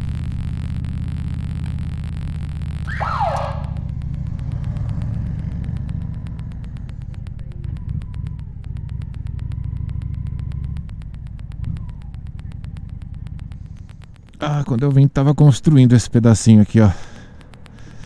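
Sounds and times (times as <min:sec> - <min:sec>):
motorcycle engine at low revs: 0:00.0 - 0:14.9, 0:17.0 - 0:18.0
short falling squeal: 0:02.9 - 0:03.8.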